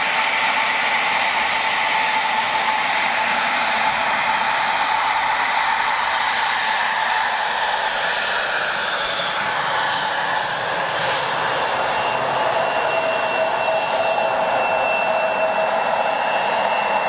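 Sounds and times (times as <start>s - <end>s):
jet engines rushing and whining: 0.0s - 17.0s.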